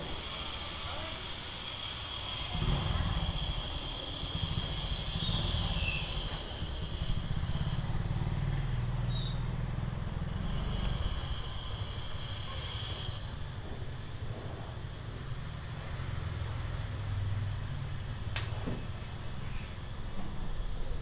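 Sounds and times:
high thin whine: 0.0s - 14.8s
grinding machine rumble: 0.0s - 21.0s.

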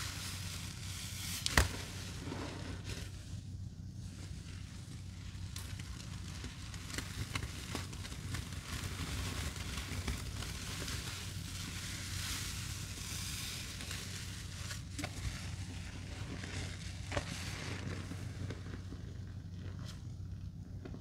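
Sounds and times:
wet sponge squeezing hiss: 0.0s - 20.4s.

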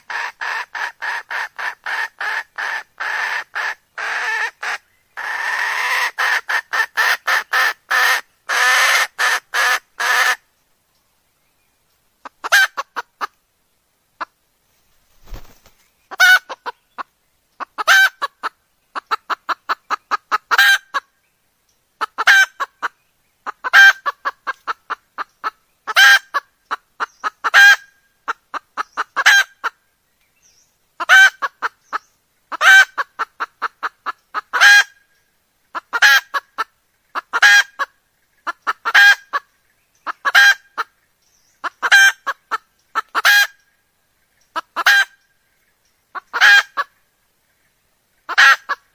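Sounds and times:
hen cackling: 0.0s - 10.4s, 12.2s - 13.4s, 16.1s - 21.1s, 22.0s - 29.8s, 31.0s - 35.0s, 35.7s - 40.9s, 41.6s - 43.6s, 44.5s - 45.2s, 46.1s - 47.0s, 48.3s - 48.9s.

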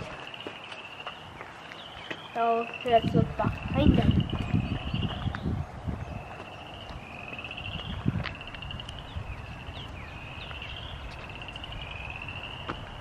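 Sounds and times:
frogs trilling: 0.0s - 13.0s
falling frog chirps: 6.2s - 13.0s.

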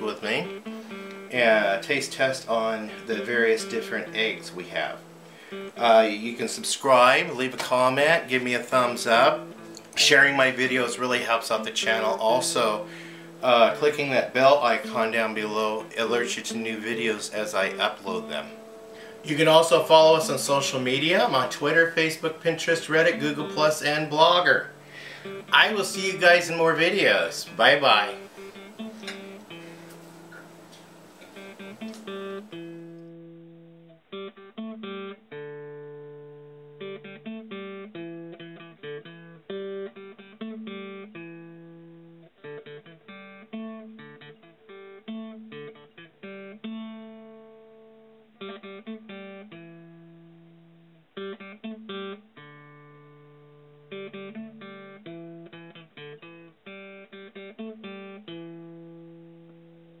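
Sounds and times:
acoustic guitar picked and strummed: 0.0s - 60.0s.

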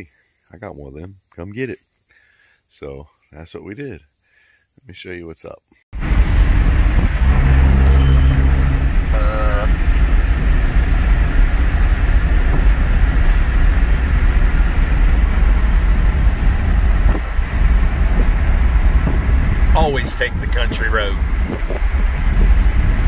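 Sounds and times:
engine drone: 6.0s - 23.0s
road and wind noise: 6.0s - 23.0s.

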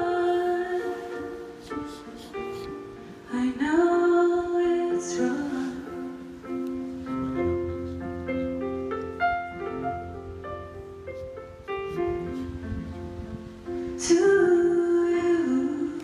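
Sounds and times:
woman singing a slow ballad: 0.0s - 1.6s, 3.1s - 6.4s, 13.9s - 16.0s
solo piano: 0.0s - 16.0s.

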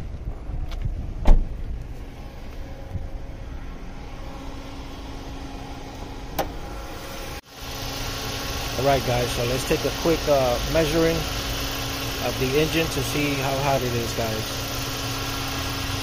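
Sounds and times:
car door shutting: 1.2s - 3.0s, 6.3s - 7.1s
car engine idling: 1.4s - 16.0s.

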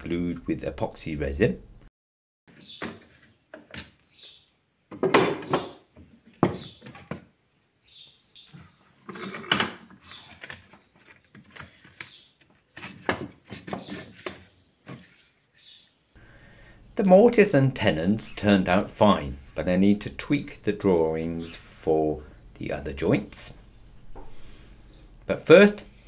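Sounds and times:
wood and metal knocks: 4.9s - 7.3s.

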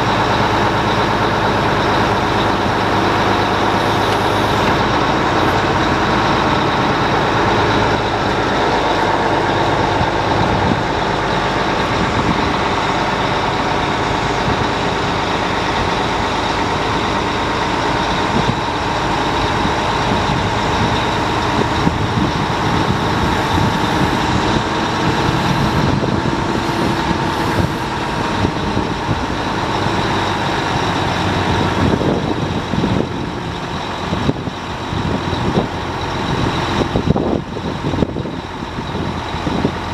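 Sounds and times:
hydraulic crane whine: 0.0s - 39.9s
truck engine drone: 0.0s - 39.9s.

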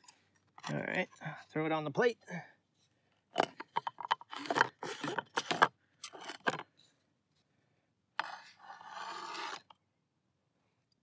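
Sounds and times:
metal utensil scraping cutting board: 4.2s - 6.6s, 8.2s - 9.7s
meat sliding across board: 8.2s - 9.7s.

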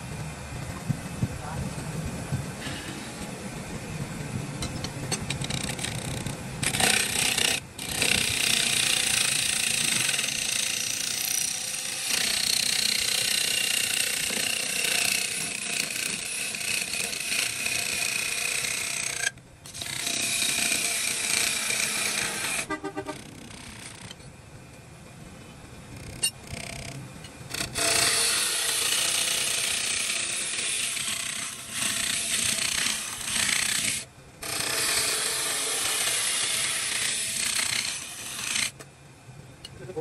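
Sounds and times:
power tool working wood: 5.4s - 22.7s, 27.5s - 38.8s.

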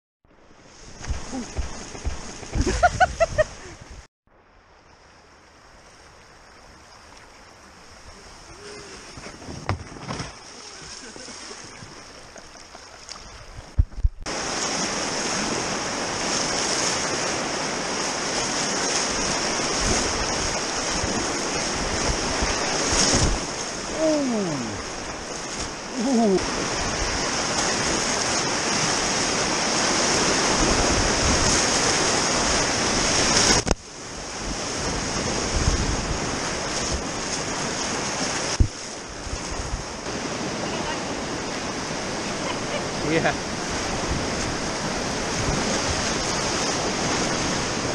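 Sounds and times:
river rapids rushing: 14.3s - 39.2s, 40.0s - 47.9s.

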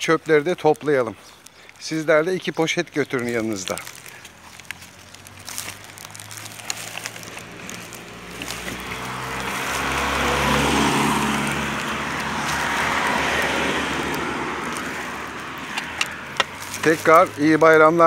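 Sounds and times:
car passing: 3.0s - 18.0s.

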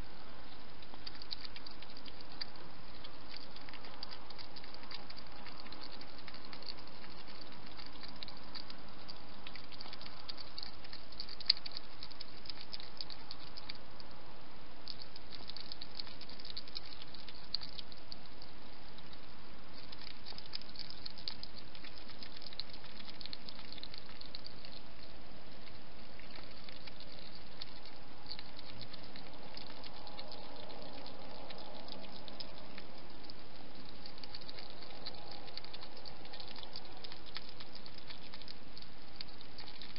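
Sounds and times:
hedgehog feeding clicks: 0.0s - 39.9s
steady hiss: 0.0s - 39.9s.

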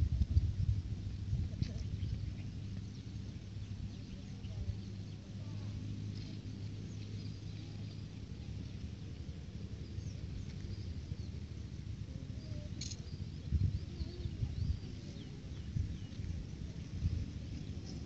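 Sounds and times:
steady low rumble: 0.0s - 18.0s
faint bird chirps: 12.2s - 16.2s.

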